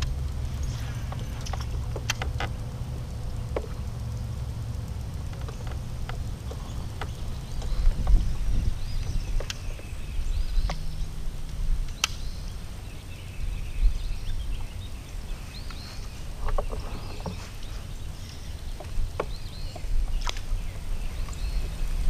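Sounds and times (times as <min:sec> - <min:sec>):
sharp clicks: 0:00.0 - 0:09.9, 0:10.5 - 0:12.5
faint bird chirps: 0:11.9 - 0:22.0.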